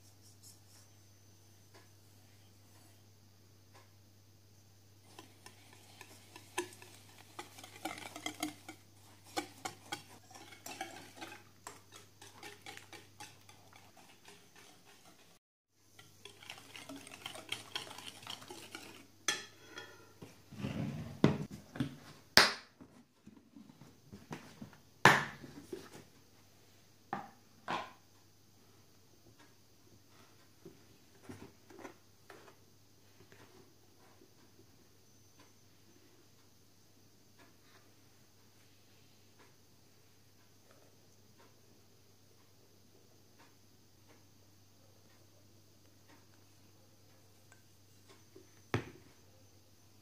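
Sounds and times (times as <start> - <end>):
whisk beating in a glass bowl: 5.0 - 15.4, 16.0 - 19.5.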